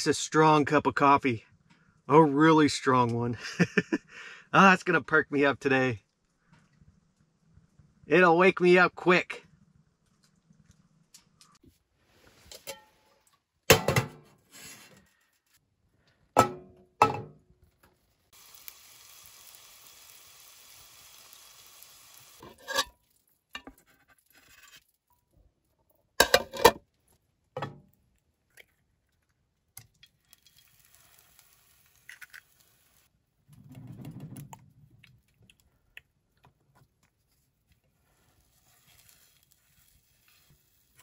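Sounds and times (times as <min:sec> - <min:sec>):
metal pan and plate clanking: 0:16.4 - 0:17.3, 0:22.4 - 0:23.0, 0:26.2 - 0:26.8
steady hiss: 0:18.3 - 0:22.4.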